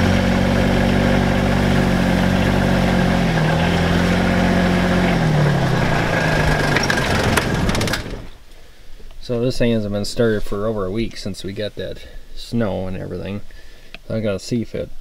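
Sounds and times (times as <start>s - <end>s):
tractor diesel engine running: 0.0s - 8.5s.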